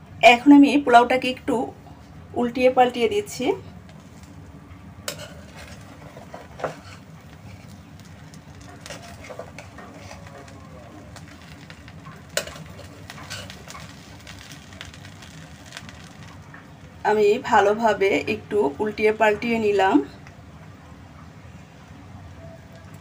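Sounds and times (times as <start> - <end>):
spatula scraping rice in pan: 5.1 - 16.3.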